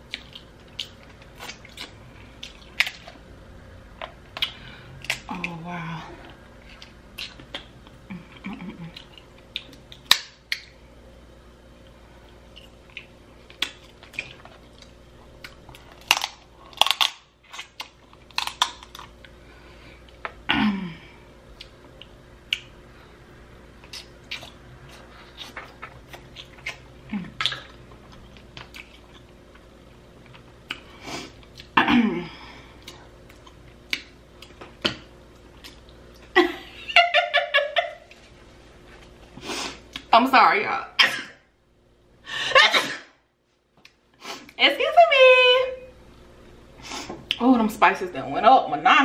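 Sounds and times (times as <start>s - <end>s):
wet mouth eating sounds: 0.0s - 3.2s, 6.6s - 10.7s, 23.8s - 29.7s
crab shells cracking: 15.4s - 19.2s.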